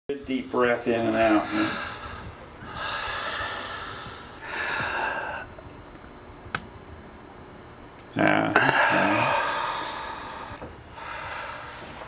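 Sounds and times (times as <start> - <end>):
man breathing deeply: 1.1 - 5.6, 8.6 - 12.0.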